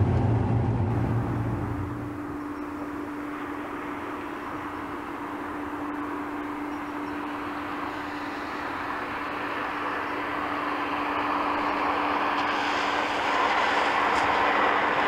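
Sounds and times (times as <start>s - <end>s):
car engine hum: 0.0s - 15.0s
tyre and road noise: 0.0s - 15.0s.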